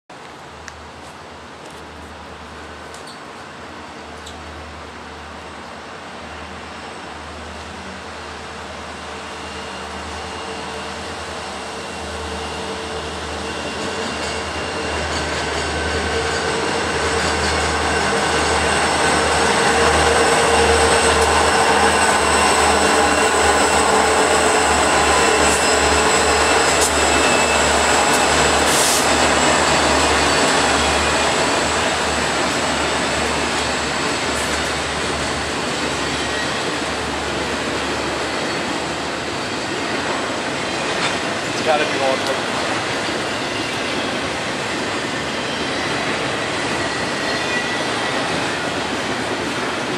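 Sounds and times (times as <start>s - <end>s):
diesel locomotives passing: 0.1s - 49.9s
freight cars rolling on rails: 6.2s - 49.9s.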